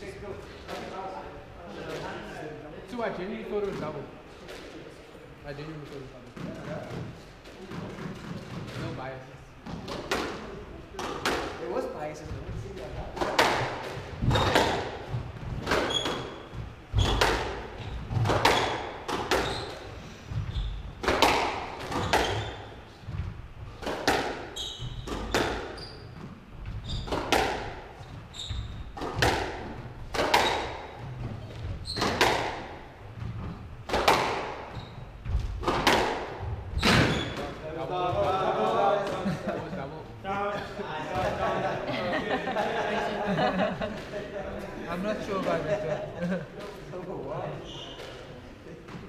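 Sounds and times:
squash ball hitting rackets and walls: 6.3s - 39.2s
shoes squeaking on wooden floor: 12.2s - 23.8s, 24.4s - 33.7s, 34.6s - 35.7s, 36.4s - 37.5s, 47.5s - 49.0s.

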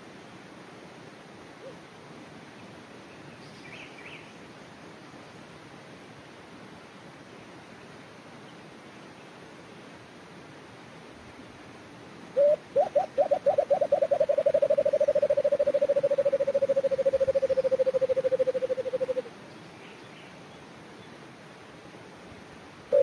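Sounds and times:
dove cooing through speaker: 12.4s - 19.3s.

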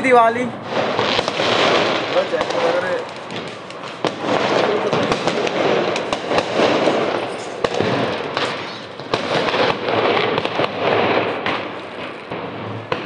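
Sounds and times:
firecrackers crackling: 0.0s - 13.0s.

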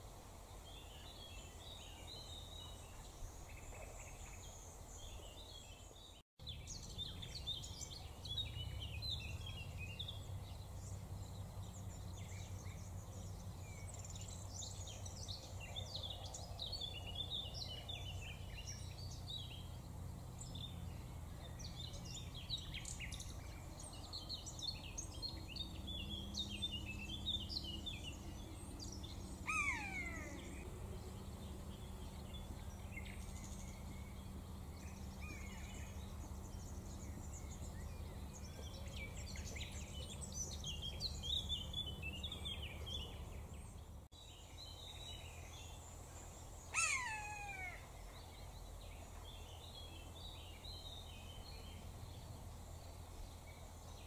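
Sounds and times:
songbirds chirping: 0.0s - 54.0s
low steady rumble: 6.4s - 54.0s
buzzard call: 29.5s - 30.6s.

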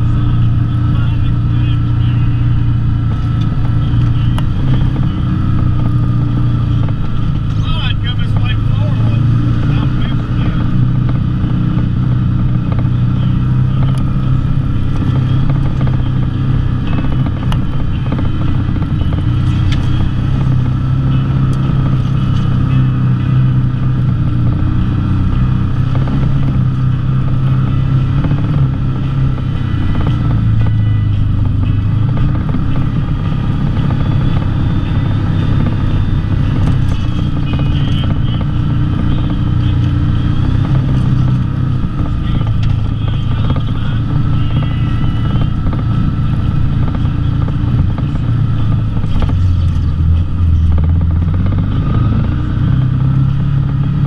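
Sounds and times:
off-road vehicle engine running: 0.0s - 54.0s.

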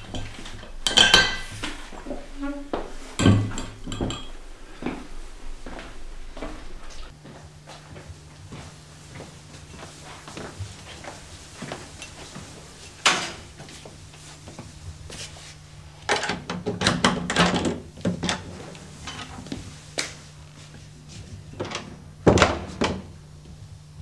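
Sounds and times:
low steady hum: 0.0s - 7.1s.

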